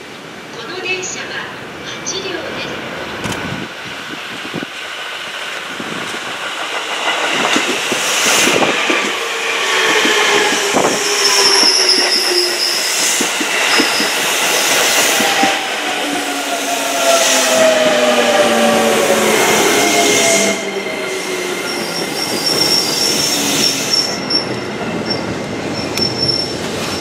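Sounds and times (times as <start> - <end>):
train wheels clicking over rails: 3.2 - 27.0
train motor whine: 7.4 - 24.6
high brake squeal: 10.7 - 13.2, 19.8 - 27.0.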